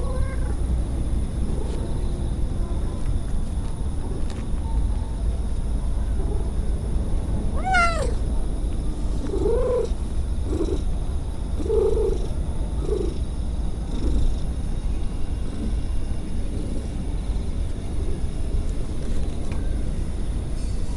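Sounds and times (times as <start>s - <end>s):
cat meowing: 0.0s - 0.6s, 7.6s - 8.2s
cat purring: 9.2s - 18.4s.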